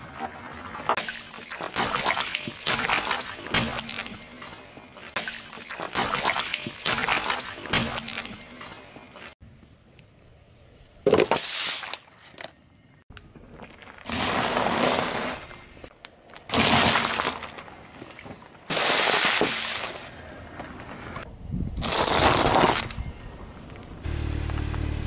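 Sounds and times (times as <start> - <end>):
car tyre crushing objects: 24.0 - 25.0.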